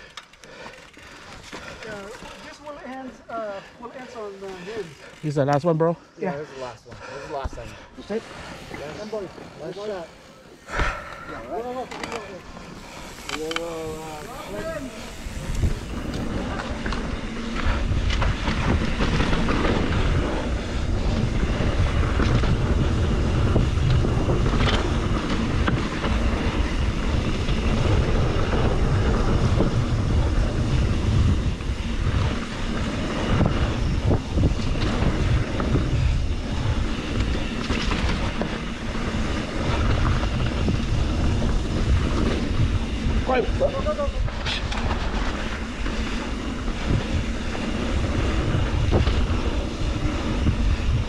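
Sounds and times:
bike tyres on dirt trail: 0.0 - 51.0
wind buffeting microphone: 10.6 - 51.0
bike knocks and rattles: 15.5 - 51.0.

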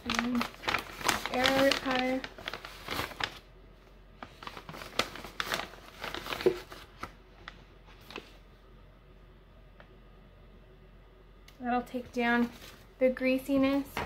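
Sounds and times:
plastic bag crinkling: 0.0 - 3.5, 4.2 - 8.4, 12.2 - 13.1.

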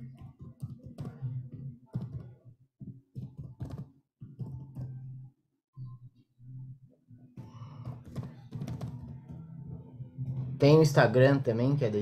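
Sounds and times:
low droning tone: 9.1 - 10.6.

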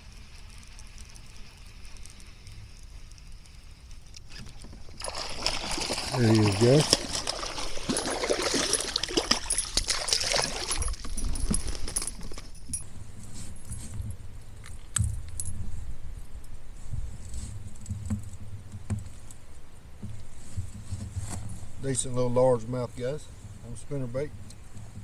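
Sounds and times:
handling sounds: 4.3 - 15.7
fish splashing in water: 4.4 - 11.9
metallic jingling and clicking: 6.2 - 13.0.

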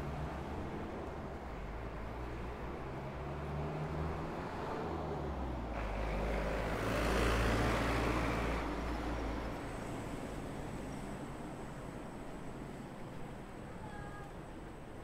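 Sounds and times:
steady low traffic rumble: 0.0 - 15.0
vehicle passing close by: 2.2 - 10.5.

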